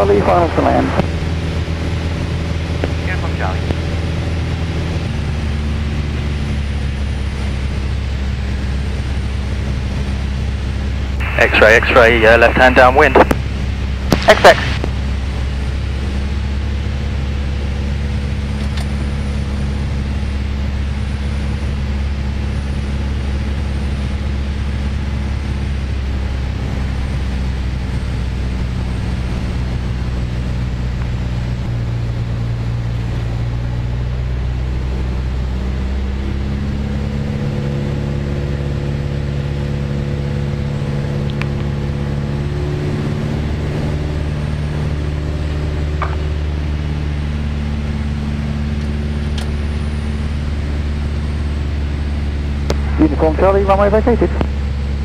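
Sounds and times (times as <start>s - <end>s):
airplane engine and propeller droning: 0.0s - 55.0s.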